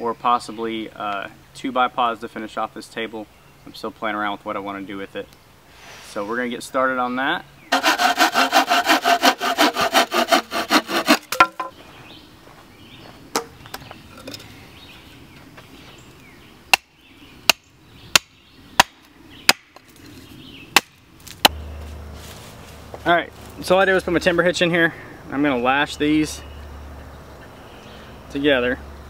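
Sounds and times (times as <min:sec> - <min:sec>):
hand saw cutting wood: 0:07.7 - 0:11.5
hatchet chopping wood: 0:07.7 - 0:11.8, 0:17.5 - 0:19.8, 0:20.8 - 0:21.6.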